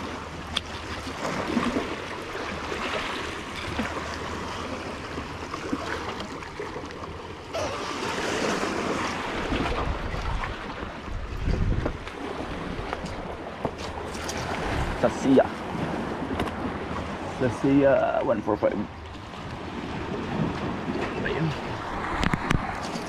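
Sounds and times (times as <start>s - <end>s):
waves washing against shore: 0.0s - 23.0s
wind buffeting microphone: 8.6s - 17.4s, 19.4s - 23.0s.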